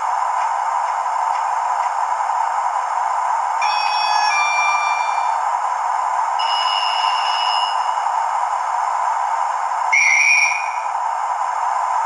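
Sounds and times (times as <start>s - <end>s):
trilling guard's whistle: 6.4s - 8.0s.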